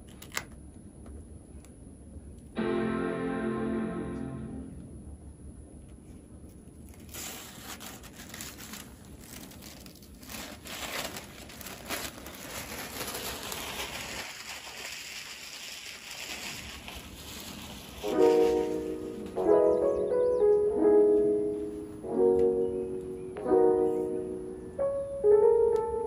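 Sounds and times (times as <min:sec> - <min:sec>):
plastic sheet crinkling and rustling: 0:06.8 - 0:19.4.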